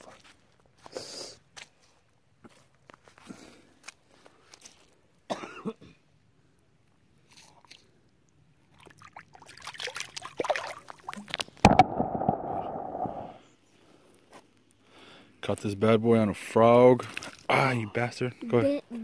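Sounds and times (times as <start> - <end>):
water splashing: 8.6 - 13.4, 17.0 - 17.6.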